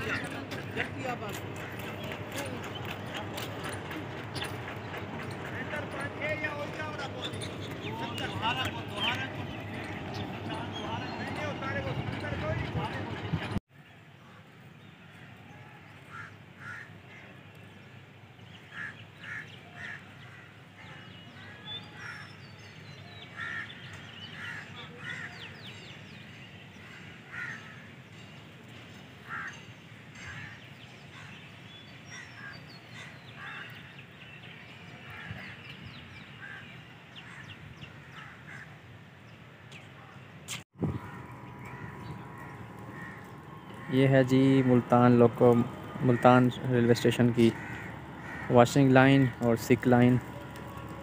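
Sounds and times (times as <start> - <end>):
small birds chirping: 0.0 - 13.6, 39.3 - 51.0
crows cawing: 16.1 - 17.3, 18.7 - 22.5, 23.3 - 25.6, 26.7 - 27.9, 29.2 - 31.4, 32.1 - 34.0, 36.4 - 38.8, 40.9 - 51.0
steady low rumble: 44.8 - 49.5.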